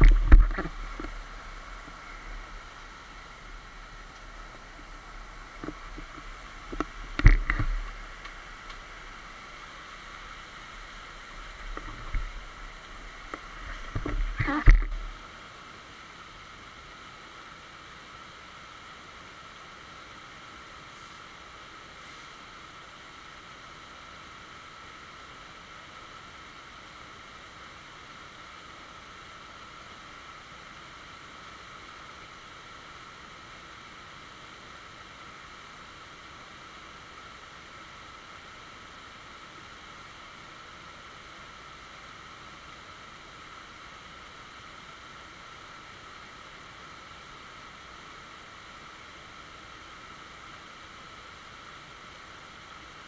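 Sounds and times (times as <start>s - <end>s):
stream running over stones: 0.0s - 53.0s.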